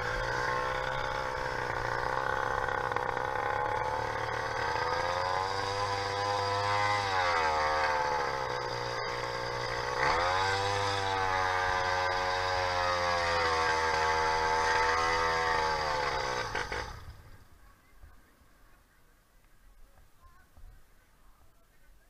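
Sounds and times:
two-stroke engine revving: 0.0s - 17.4s.

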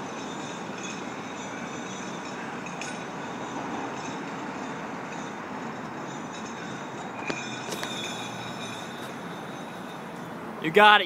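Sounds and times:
outdoor city noise: 0.0s - 11.0s
brief high squeal: 7.4s - 9.8s.

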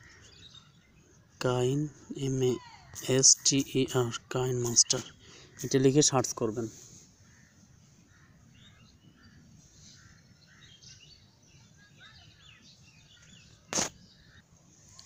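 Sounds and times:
birds chirping: 0.0s - 15.0s
sharp click: 13.7s - 14.0s.

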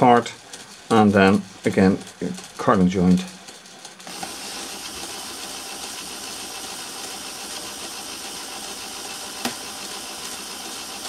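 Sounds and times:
small electric motor whirring: 3.4s - 11.0s.

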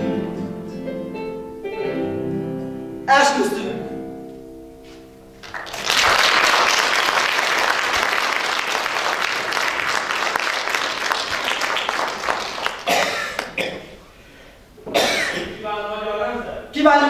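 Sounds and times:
held musical chord: 0.0s - 5.4s
audience applause: 5.4s - 13.6s.

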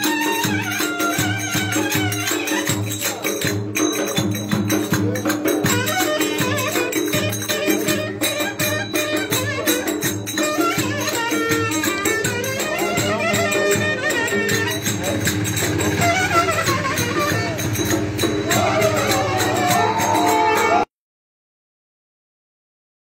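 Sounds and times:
clarinet melody: 0.0s - 3.1s, 5.6s - 20.9s.

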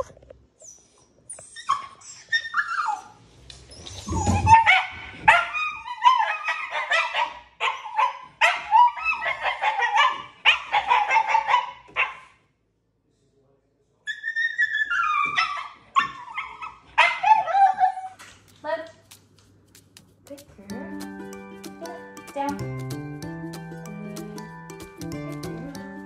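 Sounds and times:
puppy yelping and whining: 0.6s - 12.2s, 14.1s - 18.2s
puppy barking: 4.3s - 12.4s, 14.7s - 18.2s.

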